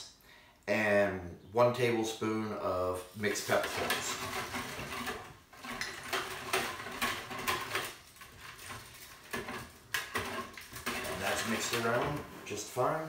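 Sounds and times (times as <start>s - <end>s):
liquid stirring: 3.2s - 13.0s
utensil knocking plastic bucket: 3.4s - 12.3s.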